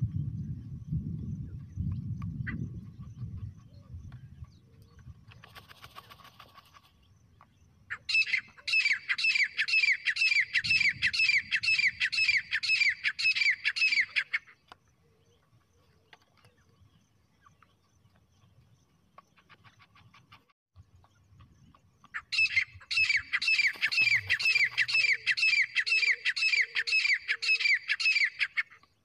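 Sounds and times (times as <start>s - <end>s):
partridge calling: 7.9s - 15.4s, 21.1s - 29.0s.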